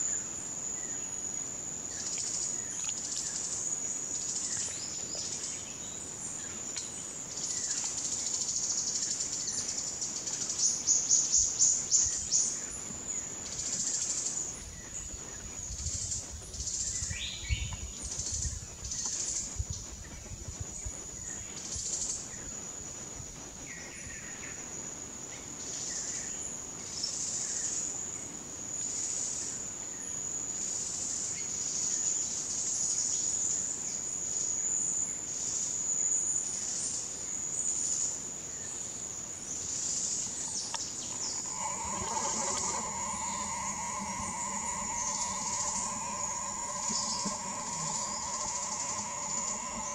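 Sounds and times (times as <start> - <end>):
high-pitched insect drone: 40.8 - 49.9.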